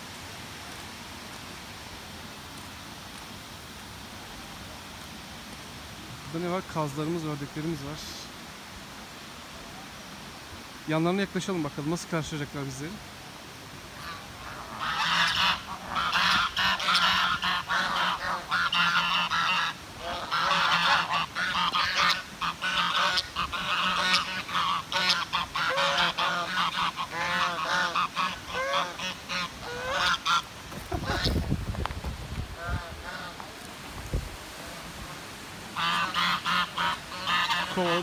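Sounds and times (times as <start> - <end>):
geese honking: 14.0 - 31.4, 32.6 - 33.6, 35.7 - 38.0.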